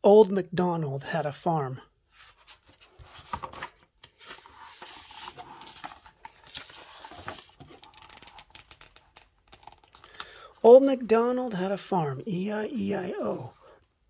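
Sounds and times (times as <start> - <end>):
paper rustling: 2.1 - 10.2
book pages turning: 2.1 - 10.4, 12.8 - 13.8.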